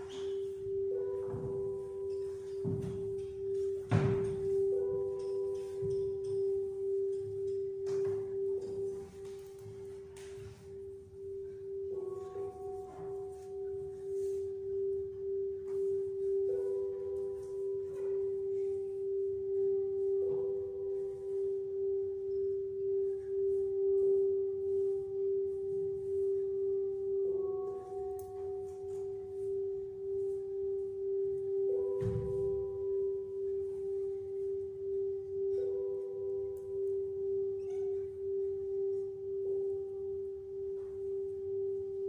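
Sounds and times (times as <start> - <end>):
slow ambient music drone: 0.0 - 42.0.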